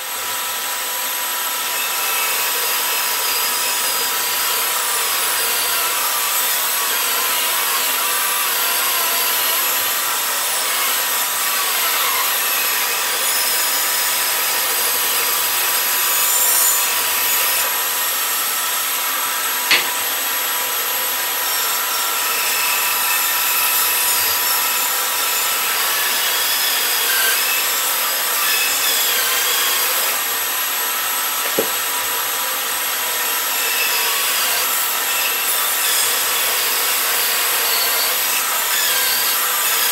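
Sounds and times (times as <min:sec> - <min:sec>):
bandsaw cutting wood: 0:00.0 - 0:39.9
sharp click: 0:19.7 - 0:20.1
wood rubbing on a table: 0:31.4 - 0:31.8.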